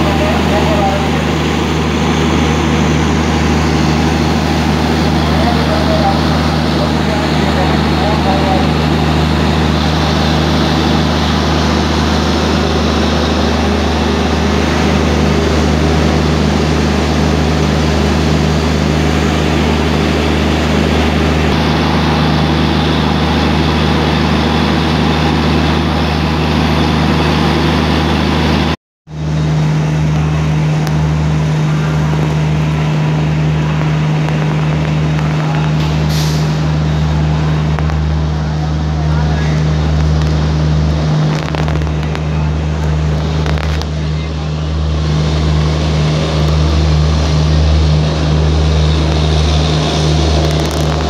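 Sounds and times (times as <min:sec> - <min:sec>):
train mechanical hum: 0:00.0 - 0:51.0.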